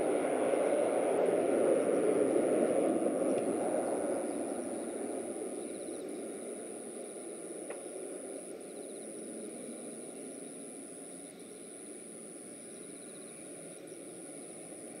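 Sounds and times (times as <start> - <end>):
jet engine rumble: 0.0 - 15.0.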